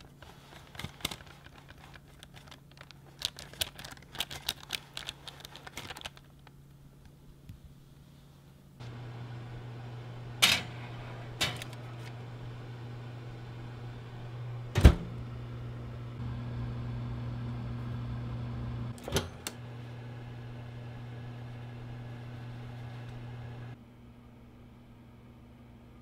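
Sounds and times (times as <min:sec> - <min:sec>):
higher hum: 0:08.8 - 0:19.0
oven humming: 0:08.8 - 0:26.0.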